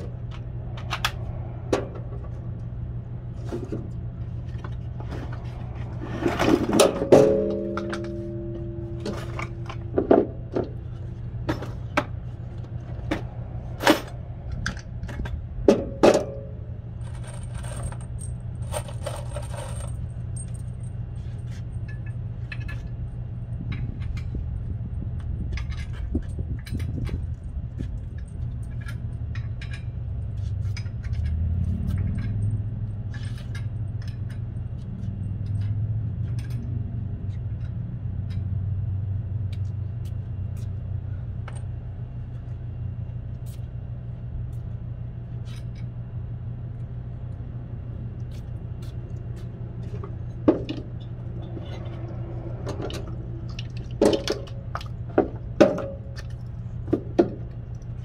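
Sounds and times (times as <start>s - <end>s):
steady low hum: 0.0s - 58.0s
sharp metal knocks: 6.7s - 10.8s, 15.2s - 16.7s, 54.0s - 56.3s.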